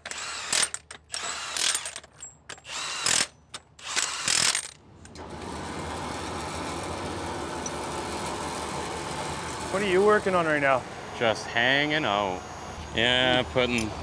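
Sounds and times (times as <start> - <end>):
engine rumble: 4.8 - 14.0.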